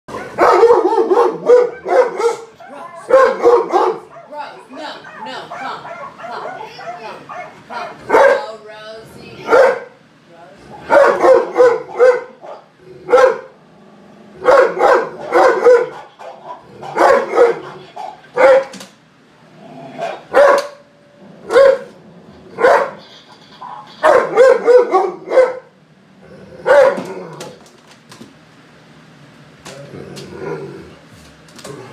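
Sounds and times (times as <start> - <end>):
dog barking loudly: 0.1 - 8.5, 9.4 - 10.0, 10.8 - 13.6, 14.4 - 18.8, 20.0 - 20.9, 21.5 - 22.0, 22.6 - 23.0, 24.0 - 25.8, 26.6 - 27.1.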